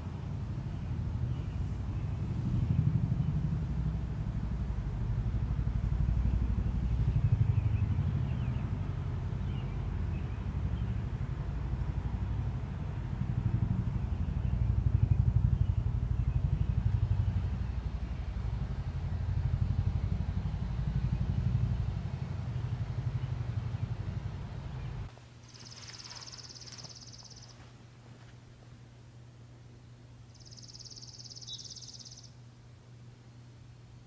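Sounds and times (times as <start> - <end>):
low engine-like rumble: 0.0 - 34.0.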